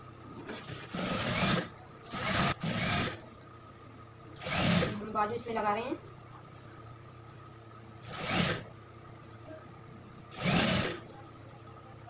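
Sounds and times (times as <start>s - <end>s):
motor hum: 0.0s - 11.9s
sewing machine stitching: 0.5s - 3.2s, 4.4s - 5.0s, 8.0s - 8.7s, 10.3s - 11.1s.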